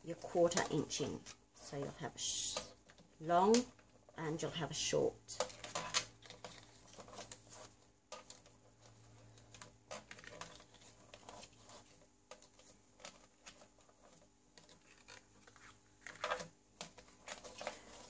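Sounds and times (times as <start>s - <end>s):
cardstock being folded: 5.4s - 18.0s.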